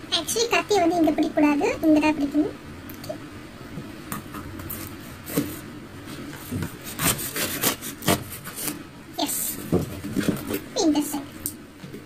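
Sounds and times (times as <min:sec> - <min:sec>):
knife cutting tape and cardboard: 0:06.5 - 0:08.8.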